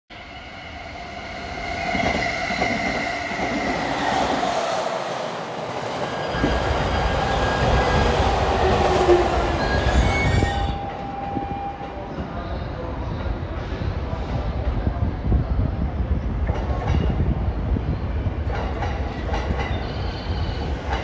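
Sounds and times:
electric train whining and squealing: 0.1s - 12.2s, 19.6s - 21.0s
train rumble: 0.7s - 21.0s.

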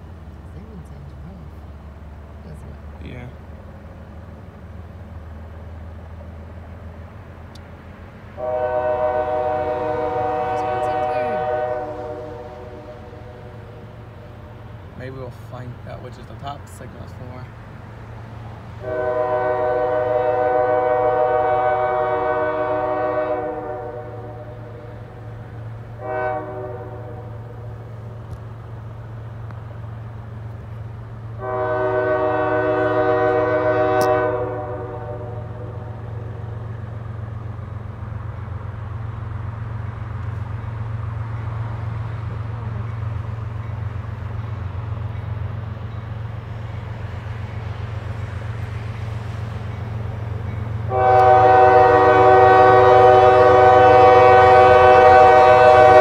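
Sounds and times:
train low rumble: 0.0s - 56.0s
locomotive air horn blasts: 8.4s - 13.9s, 18.8s - 25.0s, 26.0s - 27.6s, 31.4s - 36.4s, 50.9s - 56.0s.

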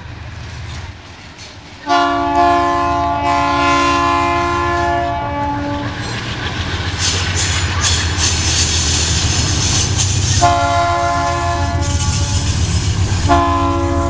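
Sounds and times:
wheels clattering on rail joints: 0.0s - 2.2s, 4.2s - 14.0s
locomotive air horn blast: 1.8s - 6.0s, 10.3s - 14.0s
diesel engine rumble: 3.2s - 14.0s.

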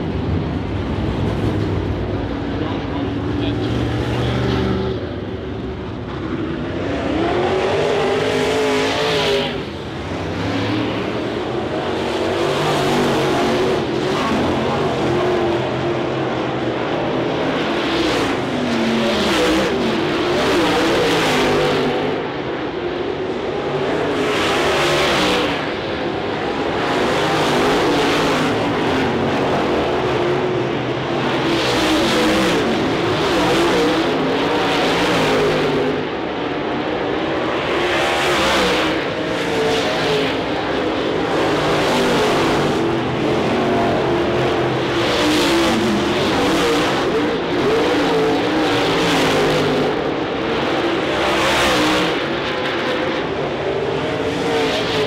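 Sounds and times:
race car engines revving: 0.0s - 55.0s.

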